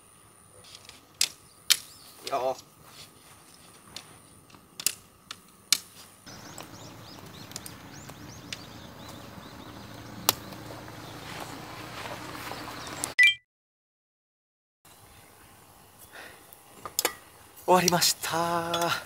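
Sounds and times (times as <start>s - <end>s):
plastic tent clips snapping: 0.7s - 2.0s, 4.0s - 6.7s, 7.5s - 8.7s, 18.7s - 19.0s
birds chirping: 1.4s - 2.6s, 6.3s - 13.2s.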